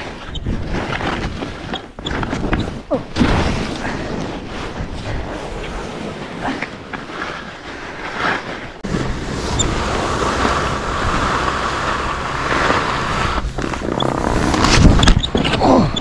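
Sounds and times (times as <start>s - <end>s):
skis hissing over snow: 7.4s - 15.0s
low rumble: 8.8s - 16.0s
wind on microphone: 8.8s - 16.0s.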